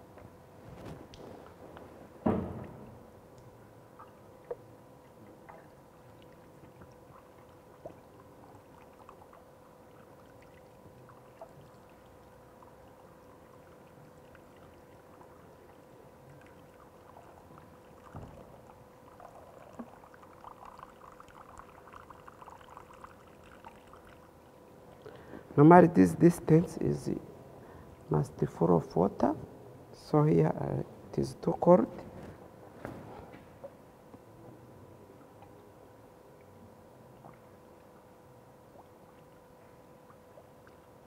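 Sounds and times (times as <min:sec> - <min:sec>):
faint steady hum: 0:00.0 - 0:41.0
water trickling into pipe: 0:02.6 - 0:25.2, 0:35.0 - 0:41.0.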